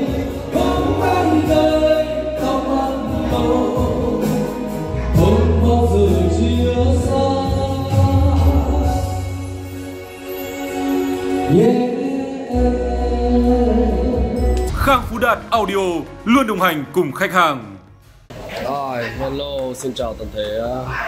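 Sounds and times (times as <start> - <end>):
choral singing: 0.0 - 9.2, 11.3 - 15.0.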